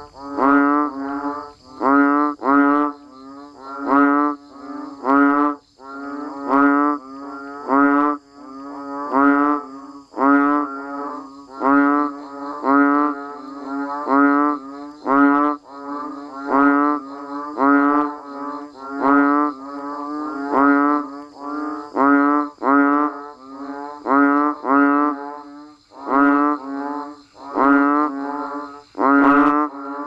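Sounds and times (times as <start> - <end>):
frogs calling in chorus: 0.0 - 30.0.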